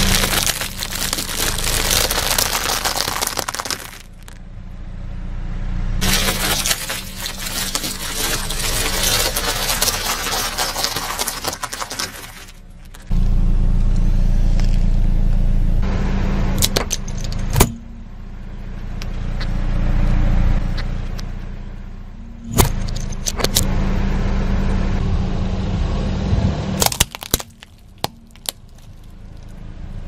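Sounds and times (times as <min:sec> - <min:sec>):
pasta crunching under tyre: 0:00.0 - 0:04.4, 0:06.0 - 0:13.2, 0:26.8 - 0:29.6
car engine humming: 0:00.0 - 0:30.0.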